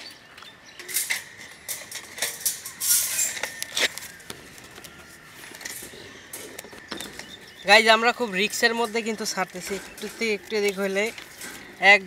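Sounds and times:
wire bird cage rattling: 0.8s - 4.8s, 7.9s - 12.0s.

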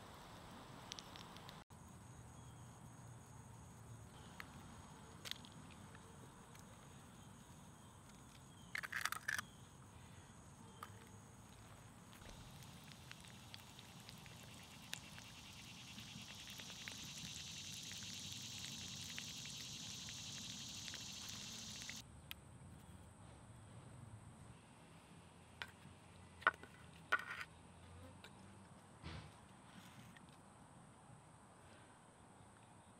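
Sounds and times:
egg sizzling and crackling: 12.1s - 22.0s.

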